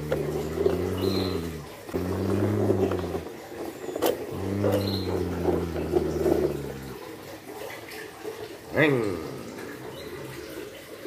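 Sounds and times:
mouth engine revving noise: 0.0s - 3.4s, 4.0s - 7.1s.

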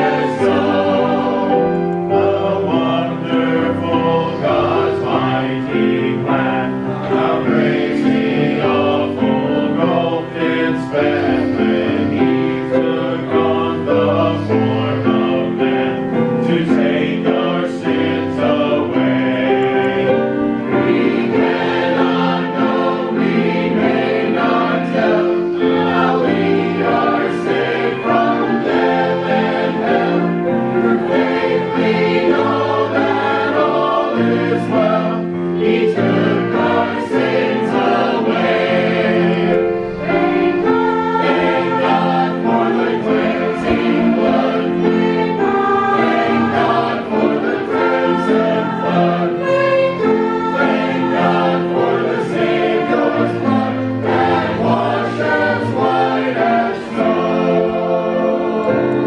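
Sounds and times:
choir singing a hymn: 0.0s - 59.0s
violin accompaniment: 0.0s - 59.0s.

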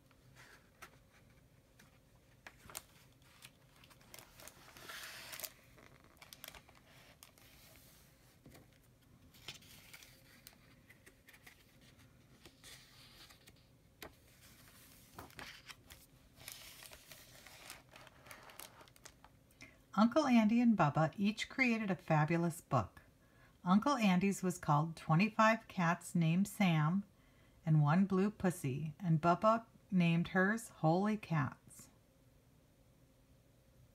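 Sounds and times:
paper pages rustling: 0.1s - 19.3s.

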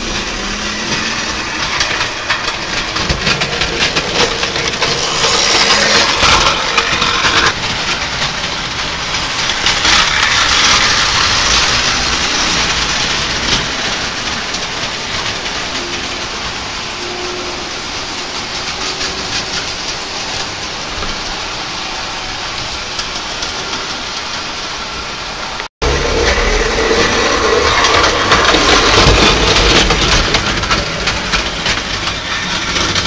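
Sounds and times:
model train wheels rattling: 0.0s - 33.0s.

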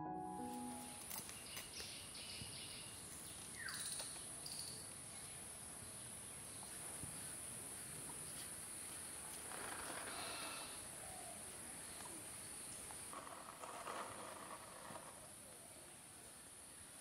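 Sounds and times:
bird chirps: 0.0s - 4.9s.

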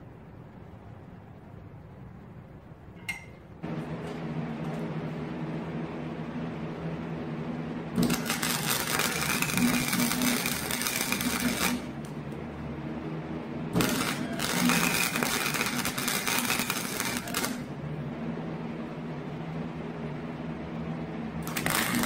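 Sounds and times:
steady low hum: 0.0s - 22.0s
welder arc crackling and sputtering: 7.4s - 12.5s, 13.7s - 17.8s, 21.4s - 22.0s.

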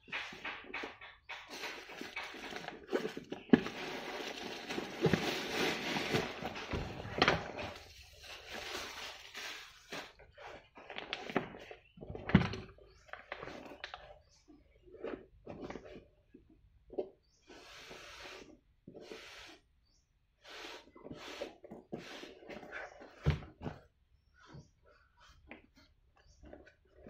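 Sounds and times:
sharp knocks and clicks: 0.0s - 3.0s
paper and fabric rustling: 1.5s - 10.2s.

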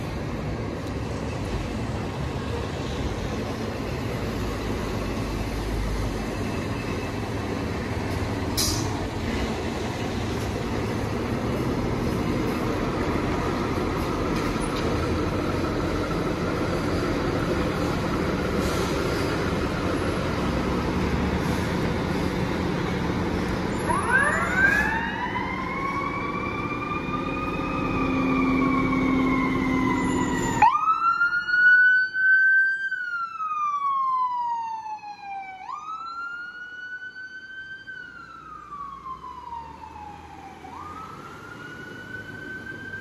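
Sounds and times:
diesel truck engine running: 7.3s - 24.1s
air brake hiss: 8.6s - 9.0s, 18.6s - 19.3s.

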